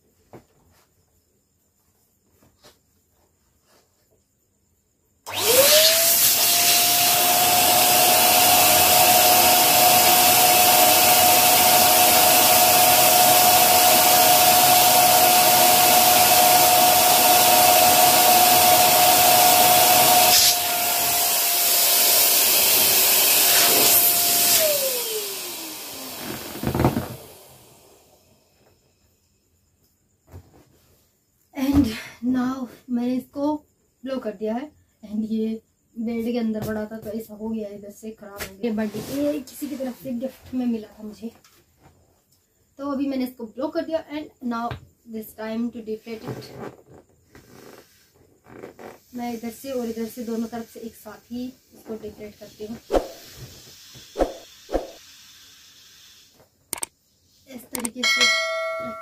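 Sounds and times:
electric air pump motor whine: 5.3s - 28.4s, 52.5s - 56.5s.

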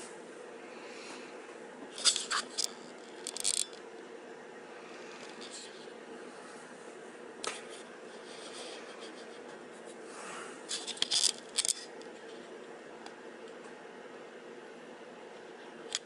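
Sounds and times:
steady low hum: 0.0s - 16.0s
rustling and clicking handling noises: 1.9s - 3.9s, 10.7s - 12.6s.

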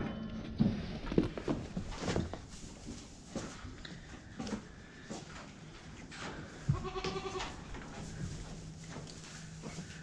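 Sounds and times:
hooves knocking on barn floor: 0.5s - 10.0s
goat bleating: 6.7s - 7.6s.

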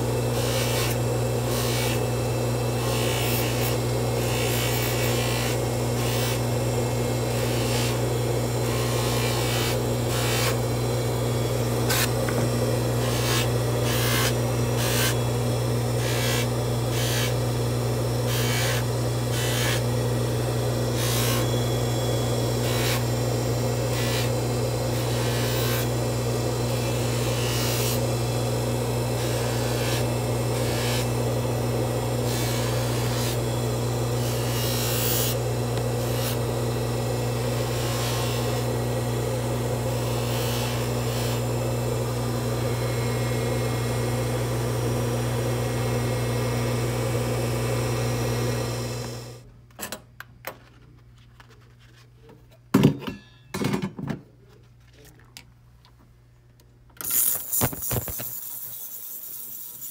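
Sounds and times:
polishing motor humming: 0.0s - 49.4s, 57.2s - 59.9s
metal rubbing on polishing wheel: 57.1s - 59.9s.

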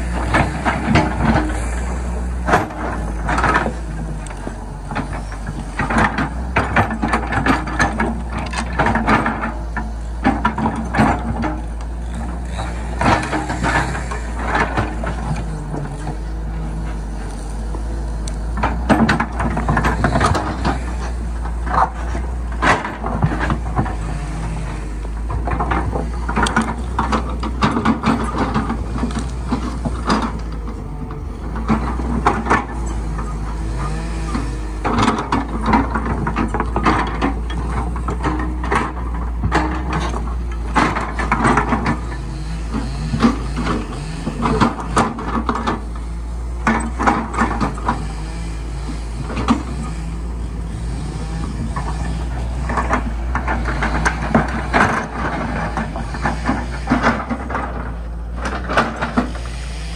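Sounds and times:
excavator diesel engine running: 0.0s - 59.9s
excavator bucket knocks and clatters: 0.1s - 16.5s, 18.4s - 24.0s, 25.1s - 46.0s.

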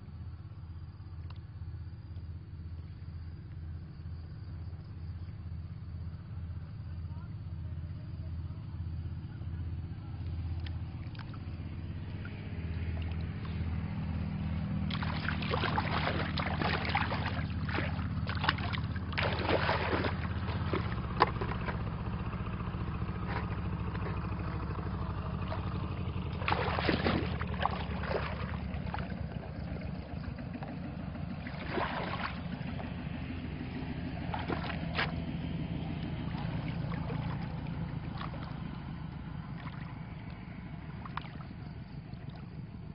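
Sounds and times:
low motor hum: 0.0s - 42.9s
muddy water splashing: 10.2s - 42.9s.

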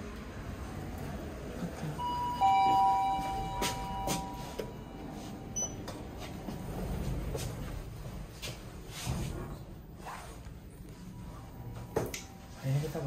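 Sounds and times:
short high beep: 2.0s - 5.8s
two-tone lift chime: 2.0s - 5.8s.

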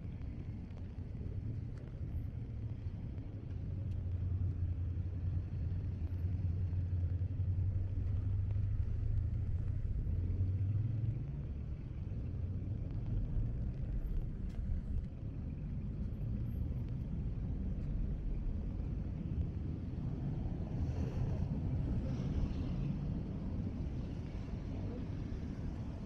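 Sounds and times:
vehicles passing on wet road: 17.4s - 26.0s.

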